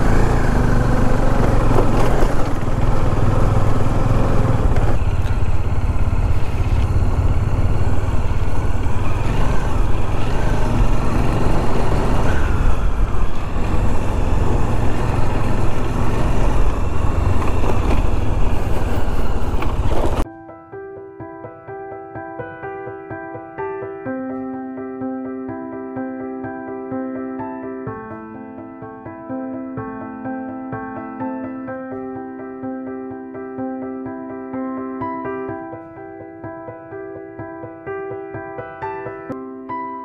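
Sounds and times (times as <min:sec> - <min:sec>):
motorcycle engine rumbling: 0:00.0 - 0:20.2.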